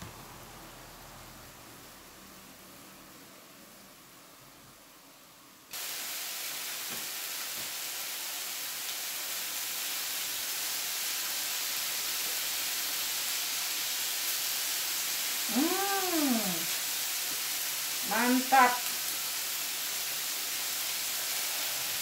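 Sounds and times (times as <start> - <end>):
meat sizzling on a grill: 5.7 - 22.0
person humming: 15.5 - 16.7.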